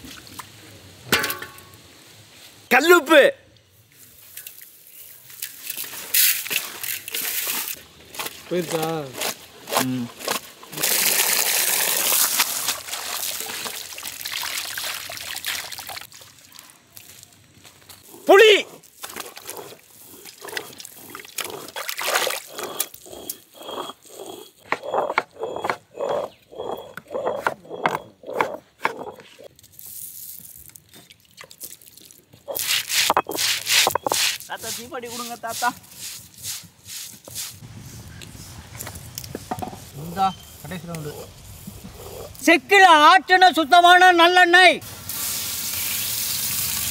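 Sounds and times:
stone roller crushing seeds: 5.9s - 12.5s, 18.4s - 30.8s, 32.5s - 37.4s
knife chopping on wooden board: 24.6s - 29.3s.

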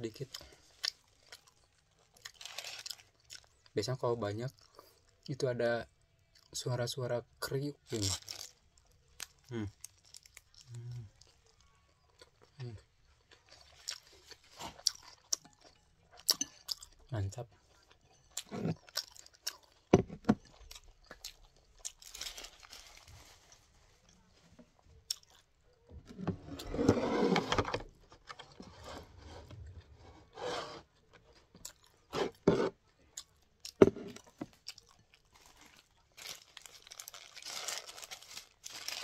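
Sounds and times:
person chewing and crunching: 0.2s - 3.7s, 7.9s - 17.0s, 17.6s - 22.9s, 25.0s - 25.5s, 31.0s - 39.0s.

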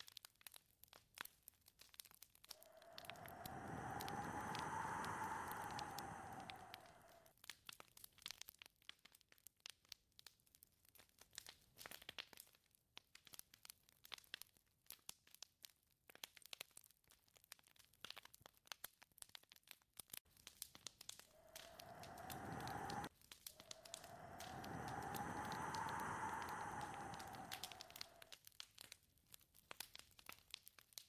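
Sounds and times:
faint crackling and clicking: 0.0s - 31.0s
whistling wind gust: 2.6s - 7.3s, 21.4s - 28.3s.

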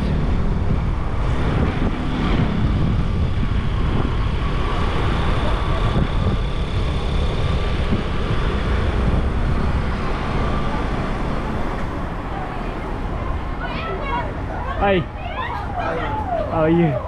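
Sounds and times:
wind on microphone: 0.0s - 13.6s
vehicle engines rumbling: 0.0s - 17.0s.

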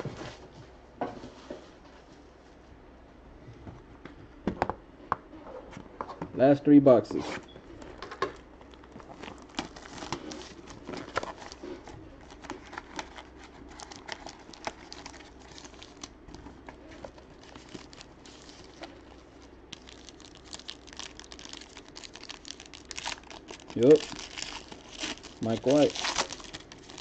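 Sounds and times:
plastic wrapping crinkling: 8.6s - 27.0s.

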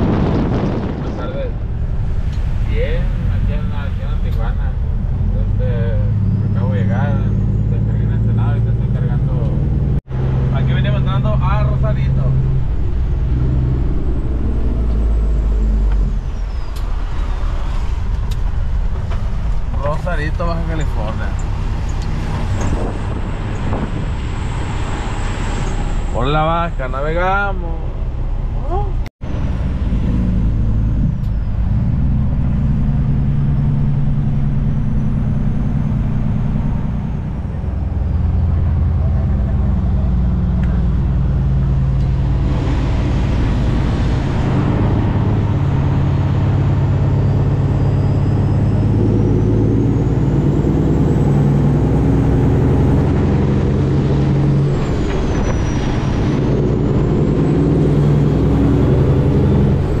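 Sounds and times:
loud rushing noise: 0.0s - 4.1s, 41.1s - 50.8s
road and wind noise: 0.0s - 60.0s
truck diesel engine running: 27.4s - 60.0s.

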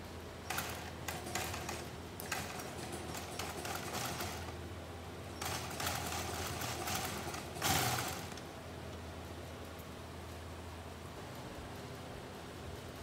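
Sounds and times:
sewing machine stitching: 0.5s - 4.6s, 5.4s - 8.4s.

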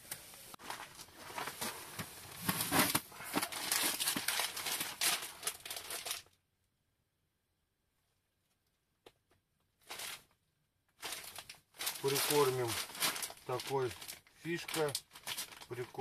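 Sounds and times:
plastic packet crinkling: 2.4s - 6.4s, 9.8s - 10.4s, 11.0s - 16.0s.

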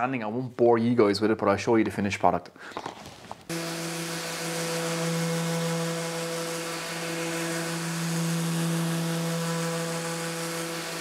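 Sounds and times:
orbital sander running: 3.5s - 11.0s.

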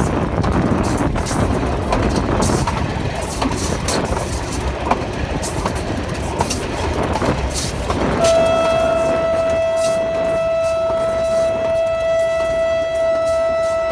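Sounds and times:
train rumbling: 0.0s - 13.9s
wheels clicking over rail joints: 0.0s - 13.9s
train horn: 7.9s - 13.9s.

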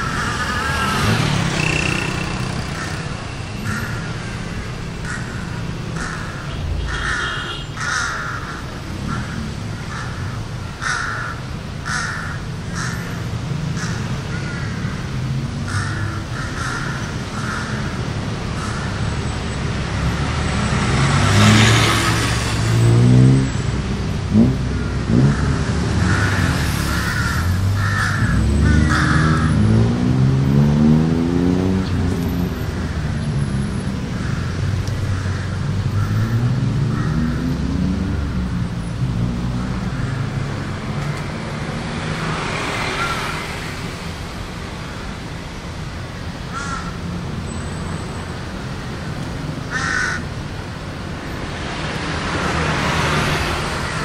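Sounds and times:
city road traffic: 0.0s - 54.0s
vehicles accelerating: 0.0s - 54.0s
crows cawing: 1.6s - 19.1s, 25.2s - 29.6s, 34.1s - 37.4s, 42.6s - 43.6s, 46.5s - 47.0s, 49.6s - 50.4s, 52.5s - 54.0s.

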